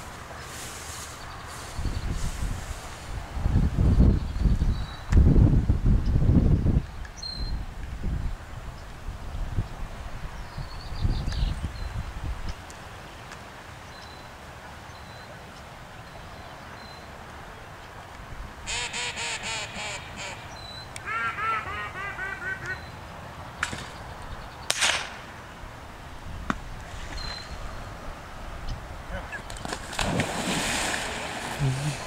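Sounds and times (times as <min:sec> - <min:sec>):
duck call quacks: 0:18.7 - 0:22.8.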